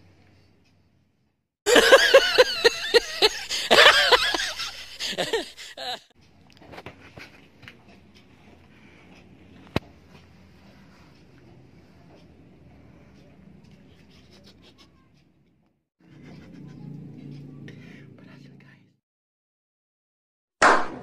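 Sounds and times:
laughter sound effect: 1.7 - 6.1.

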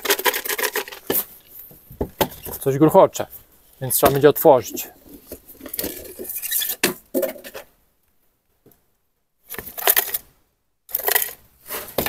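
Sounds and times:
small objects rattling in container: 0.0 - 1.3, 10.9 - 11.4.

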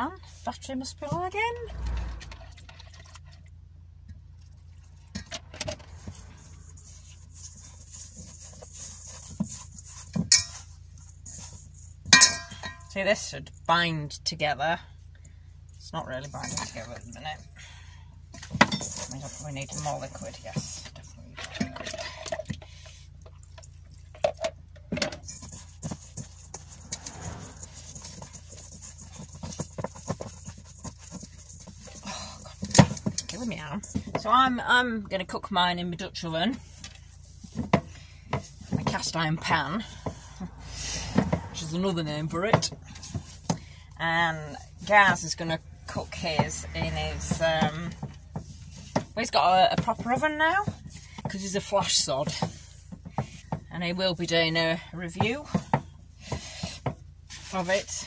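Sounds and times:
van engine humming: 0.0 - 58.0
hands mixing wet dough: 4.0 - 58.0.

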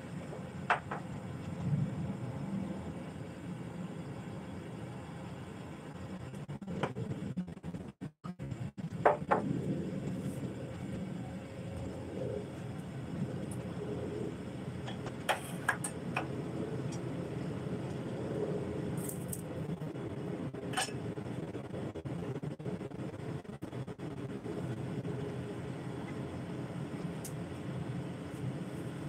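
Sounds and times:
steady low rumble: 0.0 - 29.0.

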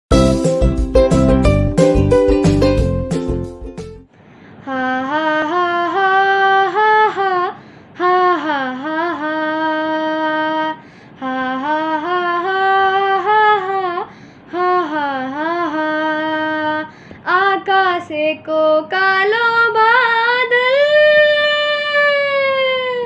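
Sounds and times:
boy singing unaccompanied: 4.7 - 23.0.

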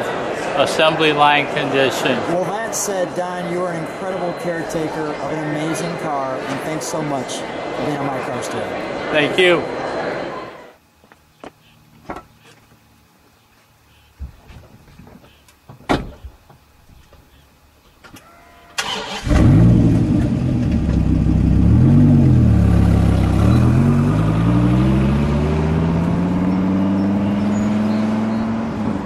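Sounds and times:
car engine starting and revving: 18.8 - 29.0.

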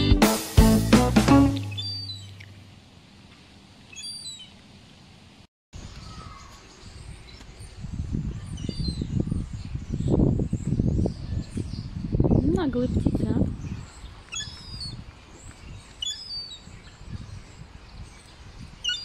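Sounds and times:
birds chirping: 1.5 - 2.6, 6.0 - 19.0.

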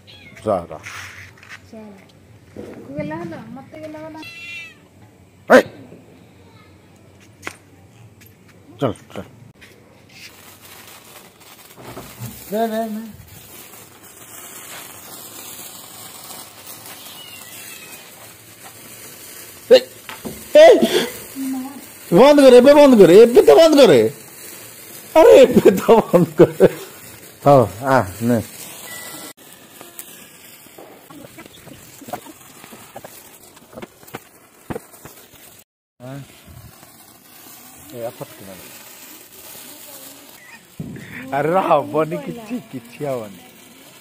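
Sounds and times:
sparkler fizzing hiss: 0.0 - 44.0
sharp pops: 7.2 - 8.2, 10.1 - 35.6, 36.2 - 41.5.

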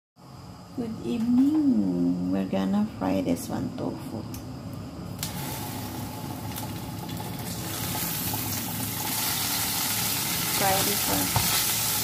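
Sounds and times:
tofu sizzling in hot oil: 5.2 - 12.0.

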